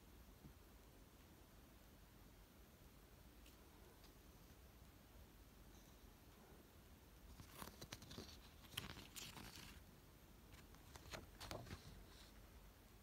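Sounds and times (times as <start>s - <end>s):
paper sheets rustling: 7.3s - 9.9s, 10.5s - 12.4s.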